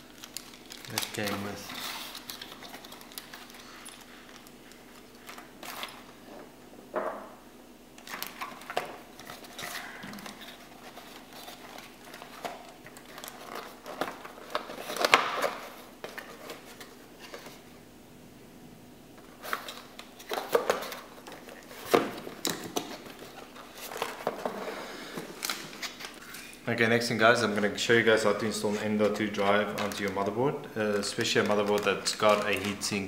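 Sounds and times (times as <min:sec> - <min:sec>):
plastic bags rustling: 0:00.0 - 0:06.2, 0:08.0 - 0:17.7, 0:27.5 - 0:33.0
cardboard flaps folding: 0:08.0 - 0:17.6.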